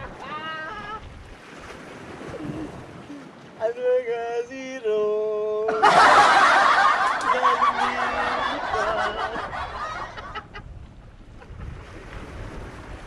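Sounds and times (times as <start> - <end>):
people laughing: 5.7 - 10.7.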